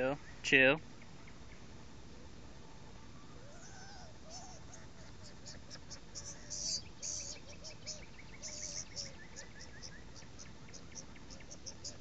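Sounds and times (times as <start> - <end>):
bird trill: 3.4 - 12.0.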